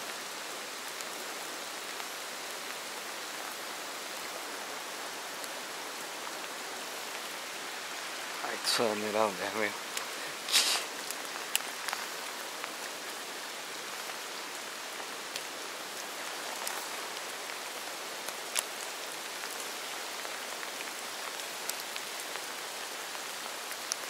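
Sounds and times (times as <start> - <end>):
rain falling on water: 0.0 - 24.0
crackle: 8.2 - 24.0.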